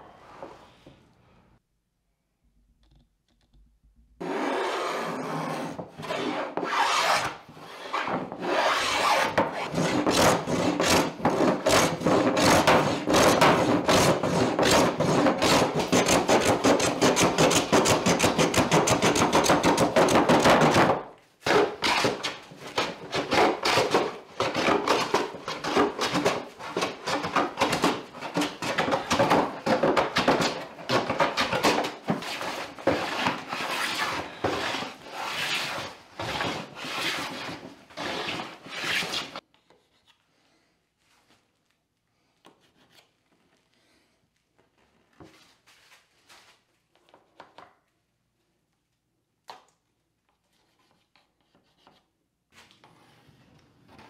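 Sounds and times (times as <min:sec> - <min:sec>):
bench plane shaving wood: 0:04.2 - 0:18.4, 0:32.1 - 0:39.3.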